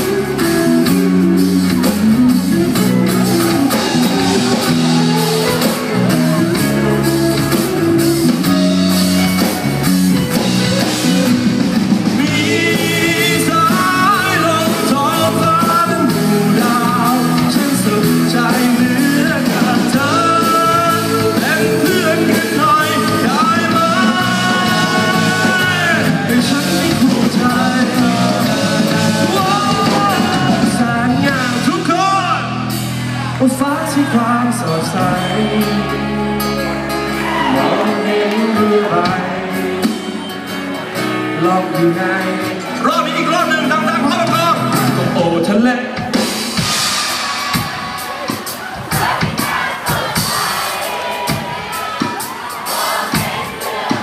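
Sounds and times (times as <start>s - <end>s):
band playing rock-pop song on guitars: 0.0s - 54.0s
person singing: 10.3s - 32.5s, 33.4s - 40.4s.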